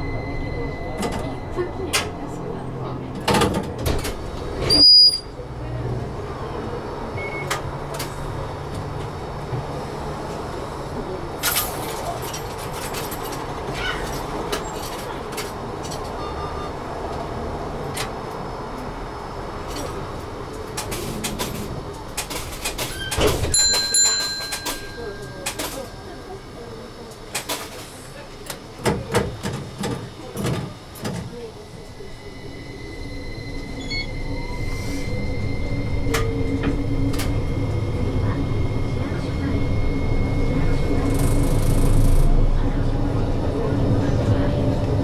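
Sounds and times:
steady electronic beep: 0.0 - 1.8, 32.6 - 36.1
loud high ringing tone: 0.0 - 2.2, 31.6 - 42.3
tram humming: 0.0 - 45.0.

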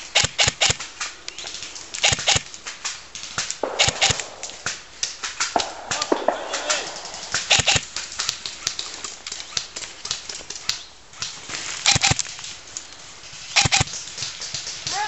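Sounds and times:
pine branches rustling: 0.0 - 15.0
close clicks: 0.1 - 13.0, 13.6 - 14.2
airsoft rifle snaps: 2.0 - 8.9.

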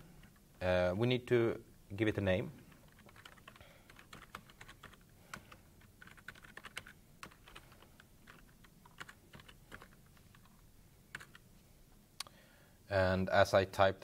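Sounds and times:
faint keyboard typing: 0.0 - 0.7, 2.5 - 11.5.

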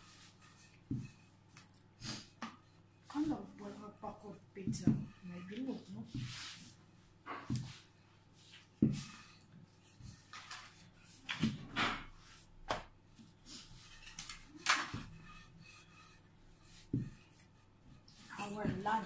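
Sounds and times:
rolling pin rubbing on dough: 0.0 - 19.0.

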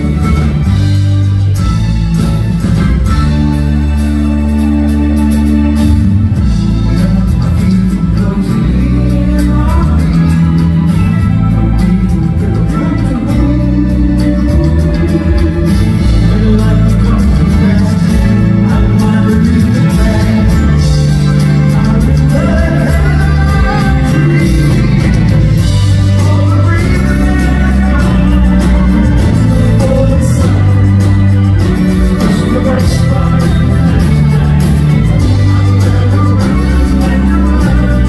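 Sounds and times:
man singing lead vocal: 0.0 - 1.0, 5.6 - 38.0
loud bass line: 0.0 - 38.0
rock band playing live: 0.0 - 38.0.

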